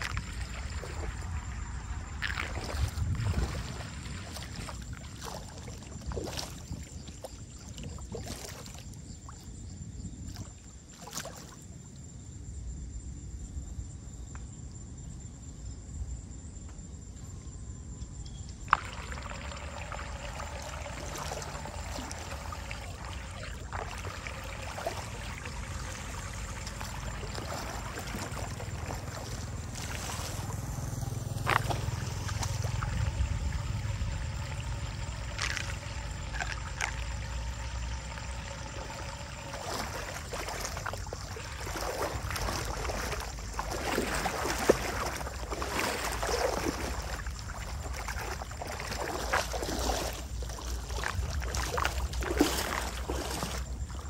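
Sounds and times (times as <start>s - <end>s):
feet wading and splashing: 0.0s - 9.6s, 10.2s - 11.8s, 18.7s - 54.0s
water running into drain: 18.7s - 54.0s.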